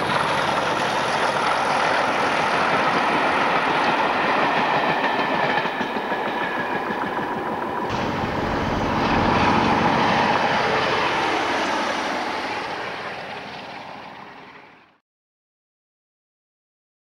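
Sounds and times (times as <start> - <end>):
train wheels clicking over rail joints: 0.0 - 11.5
diesel locomotive passing: 0.0 - 15.0.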